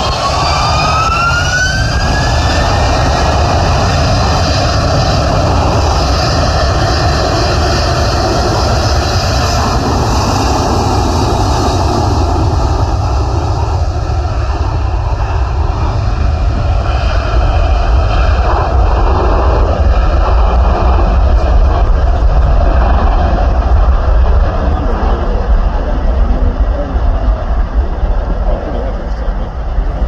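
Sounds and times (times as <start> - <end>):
jet engines roaring at takeoff: 0.0 - 30.0.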